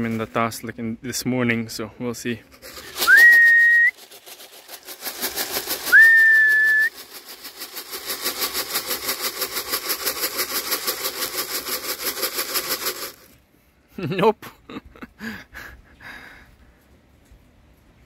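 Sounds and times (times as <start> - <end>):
grain rattling in can: 2.5 - 13.4
person whistling: 3.0 - 4.0, 5.9 - 6.9.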